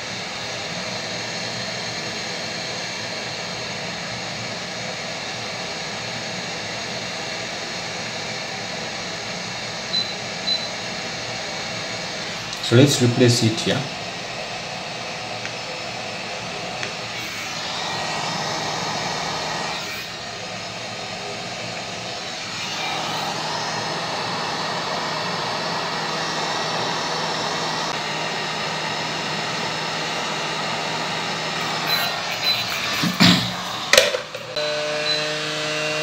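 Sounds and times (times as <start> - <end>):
hot air station blowing: 0.0 - 36.0
sharp clicks and knocks: 32.9 - 34.6.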